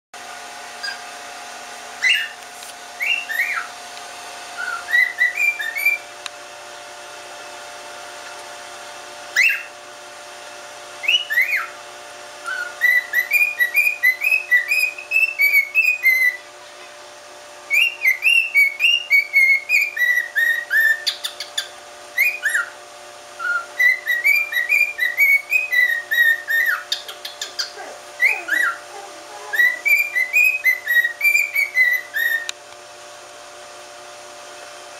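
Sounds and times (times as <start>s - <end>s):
cockatiel whistling: 0.8s - 1.0s, 2.0s - 2.4s, 3.0s - 3.7s, 4.6s - 6.1s, 9.3s - 9.7s, 11.0s - 11.8s, 12.4s - 16.4s, 17.7s - 22.8s, 23.4s - 28.8s, 29.5s - 32.6s.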